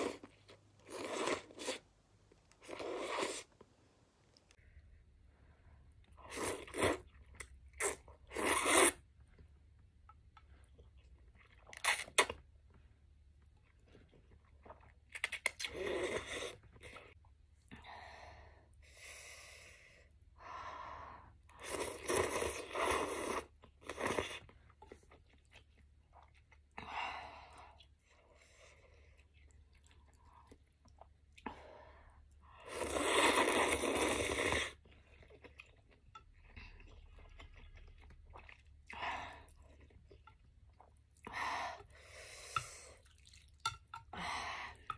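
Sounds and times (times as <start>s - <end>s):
noodles slurped and chewed: 0.0s - 3.6s, 5.9s - 17.2s, 21.6s - 26.8s, 32.2s - 44.9s.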